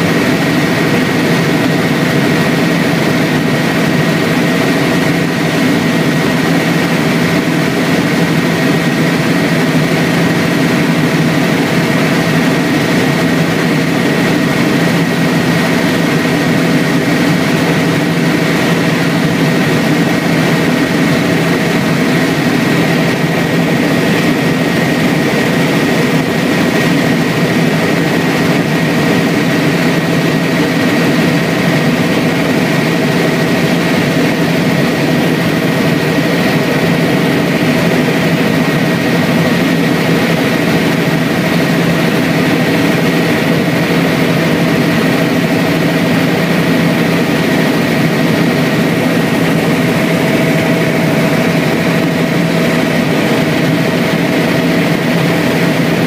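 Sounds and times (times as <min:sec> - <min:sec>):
helicopter rotor and engine drone: 0:00.0 - 0:56.0.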